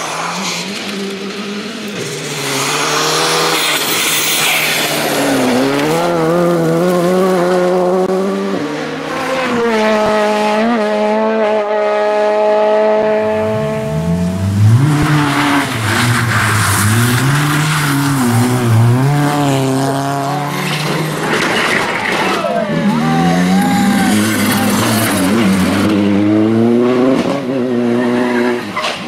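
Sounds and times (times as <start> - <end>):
tyre and road noise: 0.0 - 11.1, 12.0 - 29.0
engine revving up and down: 22.7 - 28.7.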